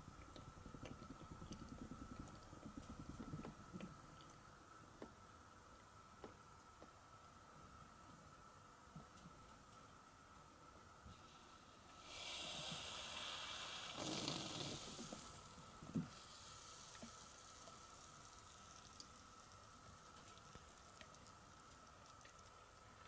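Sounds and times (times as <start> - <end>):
air hissing through coffee grounds: 11.1 - 20.9.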